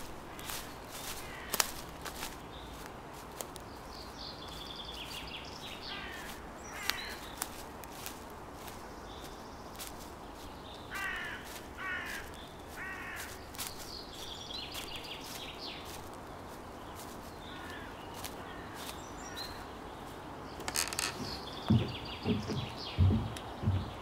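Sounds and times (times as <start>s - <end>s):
outdoor background noise: 0.0s - 24.0s
crow cawing: 1.2s - 1.7s, 5.9s - 7.2s, 10.9s - 13.4s, 17.5s - 19.6s.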